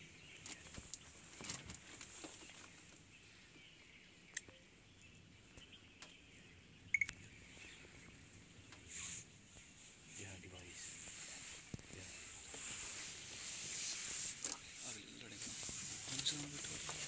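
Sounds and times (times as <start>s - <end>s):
double bird chirp: 3.8s - 8.1s.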